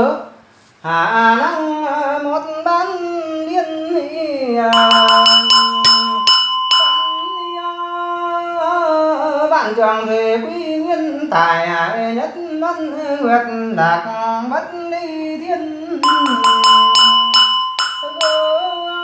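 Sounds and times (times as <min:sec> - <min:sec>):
man chanting: 0:00.0 - 0:06.3, 0:06.9 - 0:19.0
small bell ringing: 0:04.7 - 0:08.4, 0:16.0 - 0:19.0.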